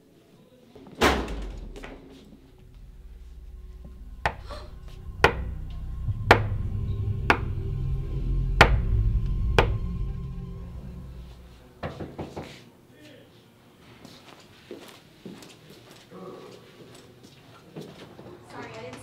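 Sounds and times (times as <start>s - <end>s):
heavy impact: 0.8s - 12.5s
sharp clicking hits: 1.0s - 10.0s
low rumbling drone: 1.0s - 12.2s.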